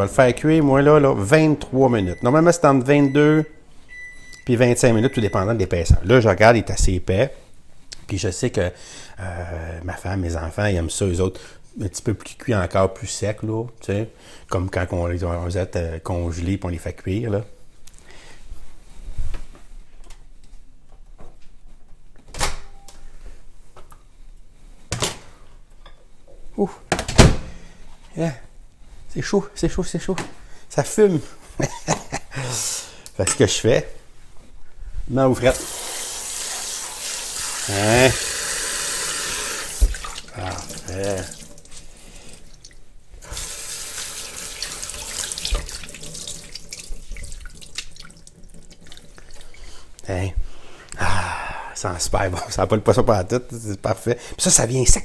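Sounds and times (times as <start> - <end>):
faucet running into metal sink: 35.5 - 41.7, 43.3 - 49.6
hands washing with splashes: 35.5 - 49.8.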